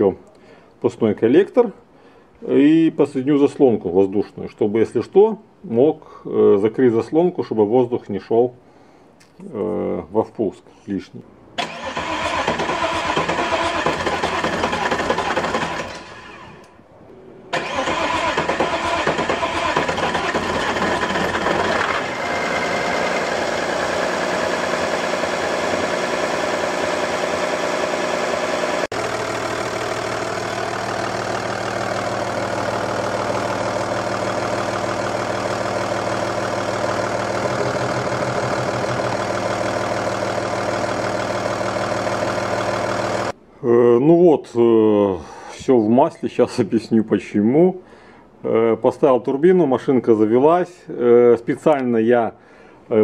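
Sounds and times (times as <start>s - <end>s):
diesel engine starting and running: 11.6s - 16.8s, 17.5s - 43.4s.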